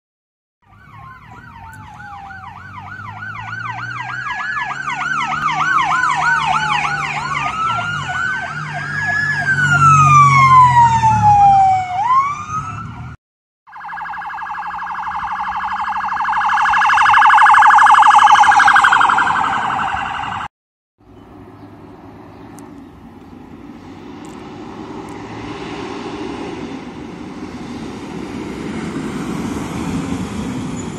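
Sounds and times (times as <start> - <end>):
emergency sirens yelping and wailing: 0.6 - 20.5
police car warbling siren: 0.6 - 20.5
engine noise: 0.7 - 30.9.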